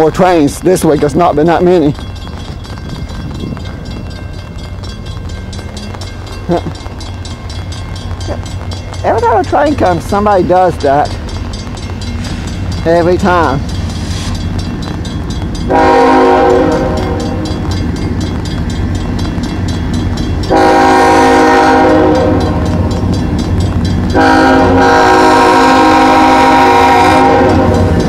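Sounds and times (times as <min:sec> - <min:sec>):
locomotive low rumble: 0:00.0 - 0:28.0
locomotive air horn blasts: 0:15.7 - 0:17.5, 0:20.5 - 0:22.7, 0:24.2 - 0:27.8.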